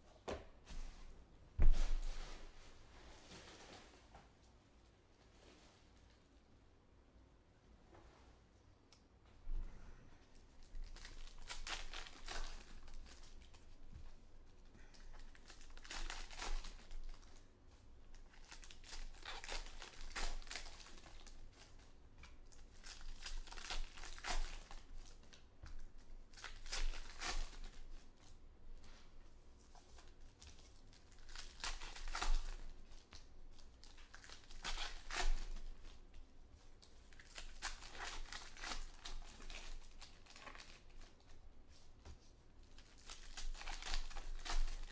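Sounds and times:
wrappers torn and crinkled: 10.6 - 13.9, 14.5 - 28.0, 29.7 - 36.1, 36.7 - 41.4, 42.6 - 44.9.

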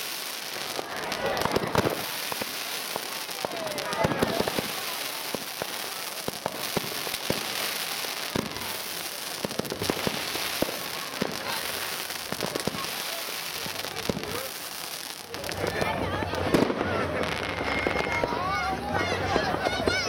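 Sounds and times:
fizzing hiss of sparks: 0.0 - 15.7
fireworks cracking and popping: 0.0 - 18.8.

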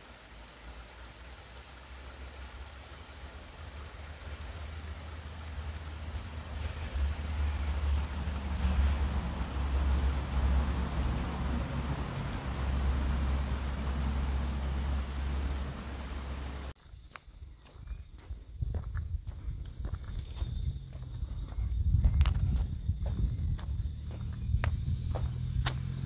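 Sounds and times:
small waterfall rushing: 0.0 - 16.8
wind rumble on microphone: 5.7 - 16.7, 18.4 - 26.0
insect chirping: 15.9 - 26.0
footsteps on pavement: 17.0 - 26.0.

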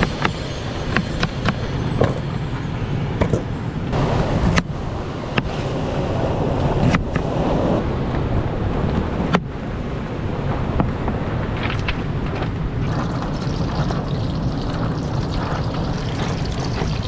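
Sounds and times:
wind on the microphone: 0.0 - 17.0
surf: 4.0 - 17.0.

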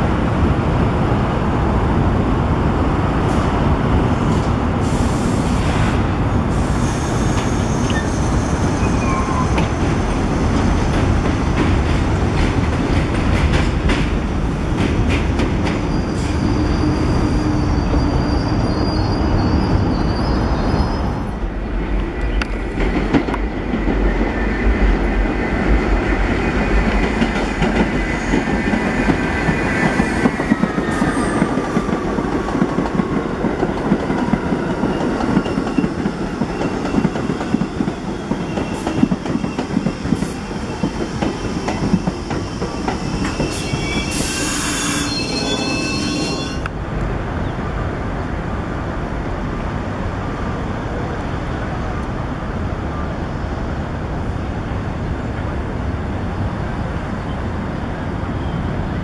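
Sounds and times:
subway train rumbling and clattering: 0.0 - 59.0
train wheels squealing: 6.6 - 10.6, 15.6 - 21.4, 27.8 - 32.1, 34.4 - 46.7.

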